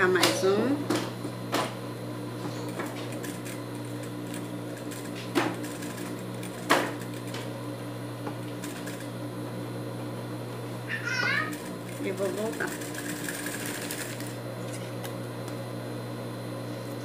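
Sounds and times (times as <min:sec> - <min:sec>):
sewing machine motor humming: 0:02.2 - 0:09.6, 0:10.6 - 0:15.0.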